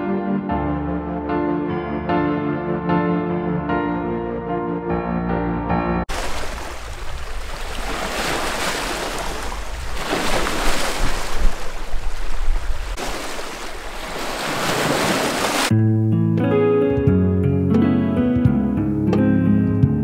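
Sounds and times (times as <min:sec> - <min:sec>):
soft piano music: 0:00.0 - 0:06.1, 0:15.7 - 0:20.0
waves breaking over rocks: 0:06.1 - 0:15.7
wind rumble on microphone: 0:09.2 - 0:13.0.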